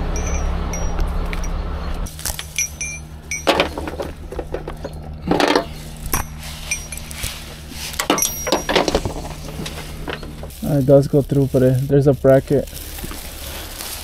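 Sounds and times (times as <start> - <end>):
steel chain clinking: 0.0 - 1.6, 2.2 - 10.8
truck engine hum: 0.0 - 14.0.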